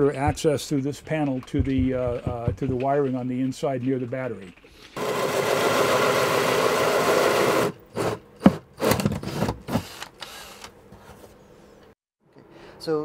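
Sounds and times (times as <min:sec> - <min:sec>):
cordless drill driving screws: 0:05.0 - 0:08.2, 0:08.8 - 0:10.7.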